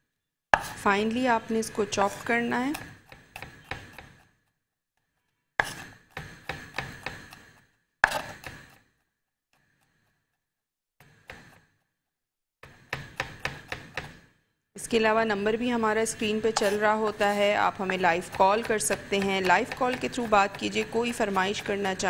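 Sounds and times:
knife chopping on wooden board: 0:00.6 - 0:00.8, 0:02.0 - 0:04.3, 0:05.6 - 0:08.8, 0:11.0 - 0:11.7, 0:12.6 - 0:14.3, 0:16.5 - 0:22.0.

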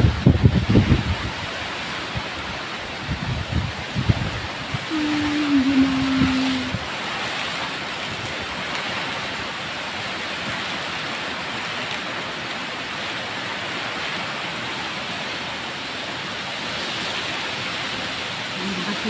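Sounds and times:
heavy rain: 0:00.0 - 0:19.0
wind through trees: 0:00.0 - 0:19.0.

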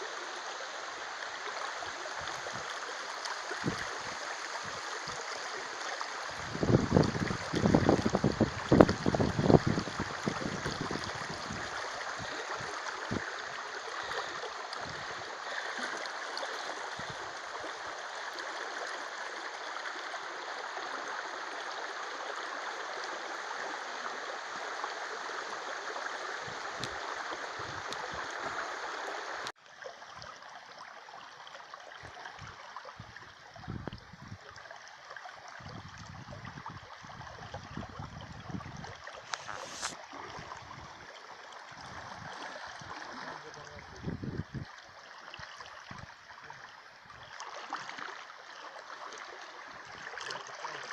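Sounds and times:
river rushing over riffle: 0:39.2 - 0:40.3.

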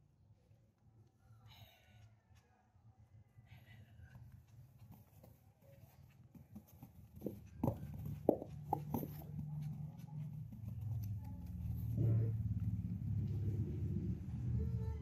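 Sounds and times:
soft taps and thumps: 0:04.8 - 0:12.2
low hum: 0:07.4 - 0:15.0.

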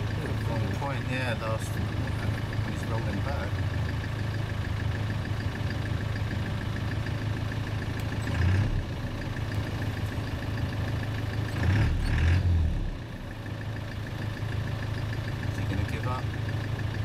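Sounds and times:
off-road vehicle engine revving: 0:00.0 - 0:03.7, 0:07.9 - 0:13.3.

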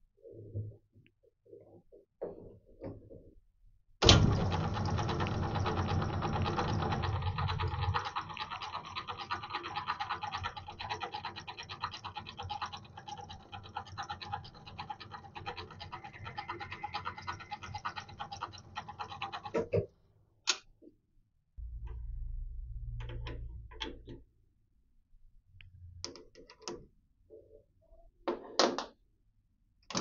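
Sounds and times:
lathe clicking rattle: 0:04.0 - 0:19.6
low rumble: 0:21.6 - 0:26.0.

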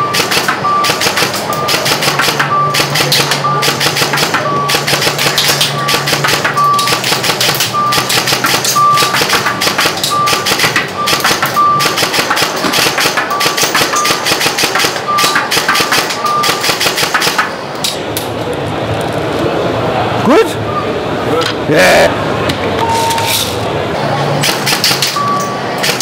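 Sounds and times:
short electronic beeps: 0:00.0 - 0:12.1, 0:13.3 - 0:16.7, 0:20.6 - 0:21.0, 0:22.8 - 0:23.6, 0:25.1 - 0:25.8
airsoft rifle rapid shots: 0:00.0 - 0:17.6, 0:24.4 - 0:25.2, 0:25.8 - 0:26.0.

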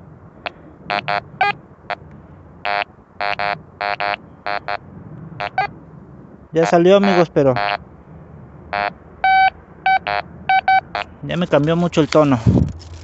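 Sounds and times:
metal detector beeps: 0:00.9 - 0:01.6, 0:02.7 - 0:04.8, 0:05.4 - 0:05.7, 0:07.0 - 0:07.8, 0:08.8 - 0:11.1.

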